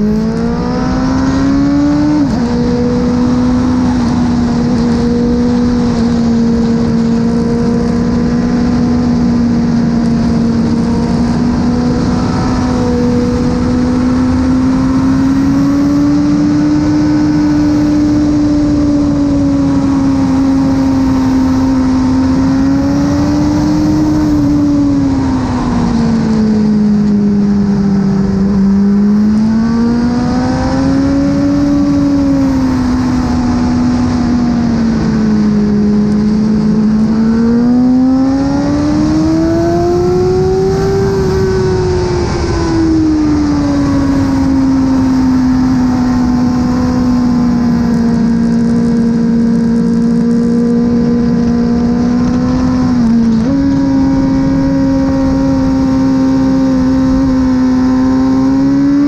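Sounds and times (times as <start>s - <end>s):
motorcycle engine revving: 0.0s - 59.0s
wind rush: 0.0s - 59.0s.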